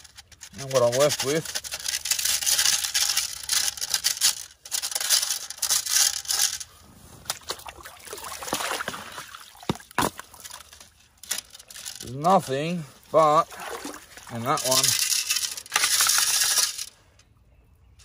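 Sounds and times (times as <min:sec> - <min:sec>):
gravel scraping on wire mesh: 0:00.0 - 0:07.5, 0:10.2 - 0:17.1
water sloshing and trickling: 0:07.2 - 0:16.3.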